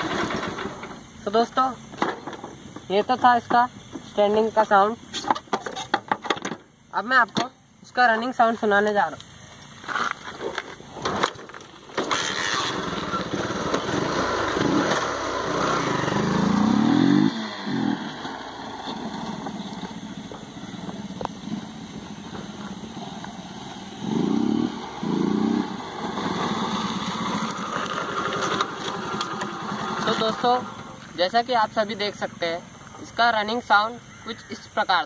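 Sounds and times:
motorcycle engine running: 11.8 - 32.9.

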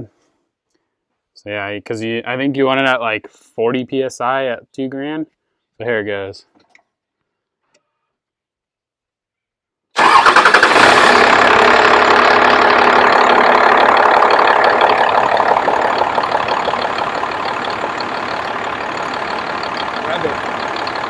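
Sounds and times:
diesel engine idling: 10.0 - 21.0.

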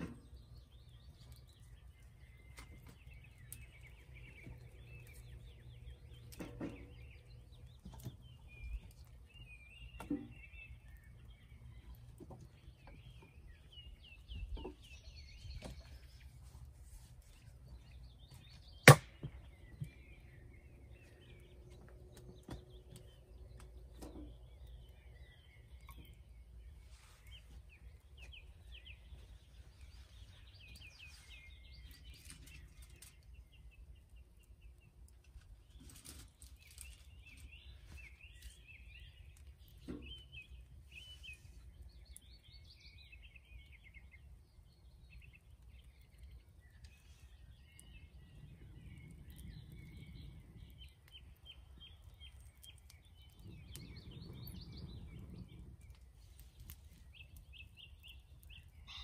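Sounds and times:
birds singing: 0.0 - 59.0
wood sticks knocking and cracking: 18.3 - 20.0.

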